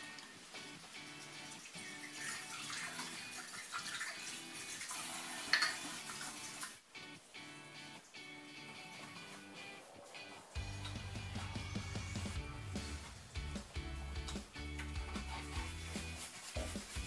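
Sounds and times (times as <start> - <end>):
tap water running: 0.0 - 6.8
background music: 0.0 - 17.0
dishes being washed: 0.8 - 6.8, 14.2 - 17.0.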